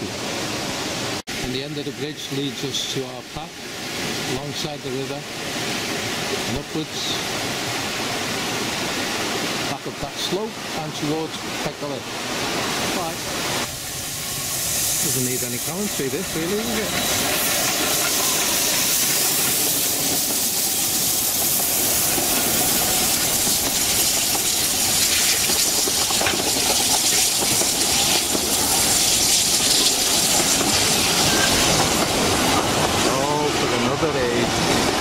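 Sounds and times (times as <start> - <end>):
steam hissing from locomotive: 1.8 - 35.0
coaches rolling on rails: 13.9 - 35.0.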